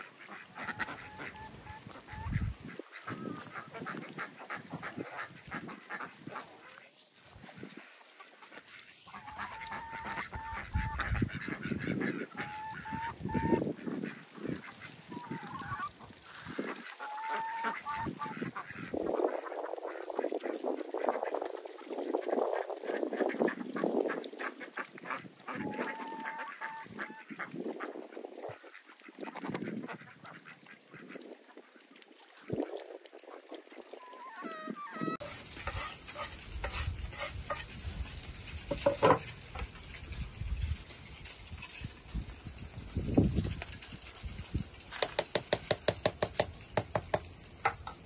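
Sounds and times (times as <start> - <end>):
farmyard fowl honking: 0.0 - 6.9, 8.4 - 20.0, 24.2 - 27.5, 34.0 - 37.6
rustling: 14.0 - 18.6, 35.2 - 48.0
knocking: 45.0 - 48.0.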